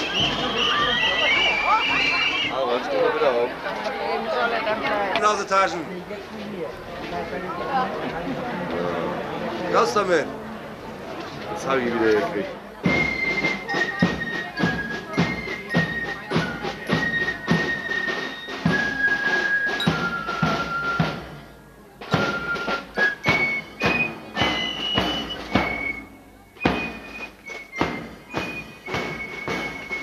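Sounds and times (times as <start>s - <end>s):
high flutes: 0.0s - 3.0s, 12.8s - 30.0s
steady drum beats: 0.0s - 3.4s, 11.6s - 30.0s
fife and drum band march: 0.0s - 30.0s.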